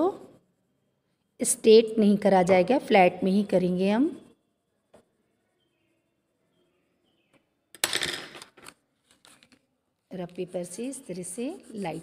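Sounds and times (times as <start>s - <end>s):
paper rustling: 8.4s - 12.0s.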